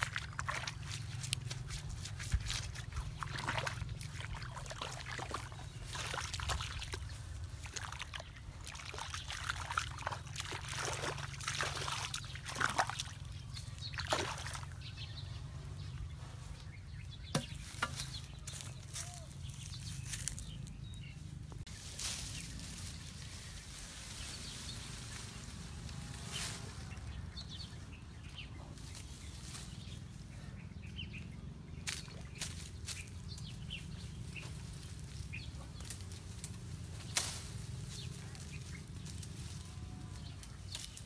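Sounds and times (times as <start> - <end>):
splashes and scuffs: 0.0 - 15.0, 31.8 - 33.5
muddy water sloshing: 0.0 - 20.8, 21.8 - 41.0.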